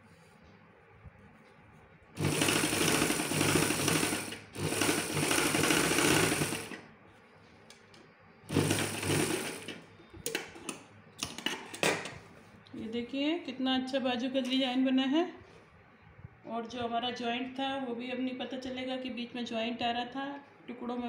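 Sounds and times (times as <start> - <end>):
sewing machine stitching: 2.2 - 6.8, 8.5 - 9.8.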